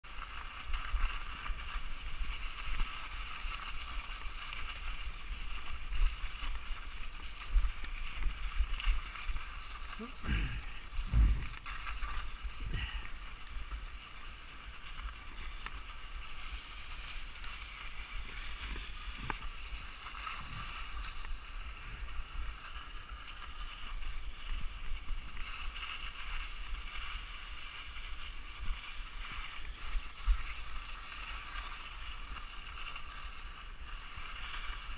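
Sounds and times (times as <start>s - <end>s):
bike tyre and frame rattle: 0.0s - 34.9s
wind buffeting microphone: 10.2s - 13.1s
bike bumps: 10.3s - 13.1s.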